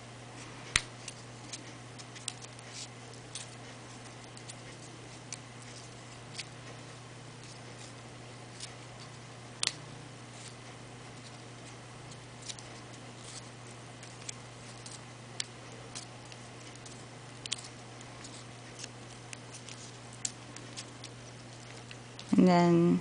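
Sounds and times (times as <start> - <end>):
steady low hum: 0.0 - 23.0
tweezers clicking on paper: 12.1 - 22.3.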